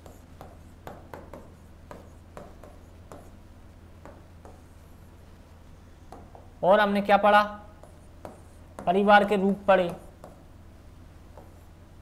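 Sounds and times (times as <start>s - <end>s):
stylus tapping and scraping: 0.0s - 3.4s, 4.0s - 4.9s, 7.8s - 10.4s, 11.3s - 11.7s.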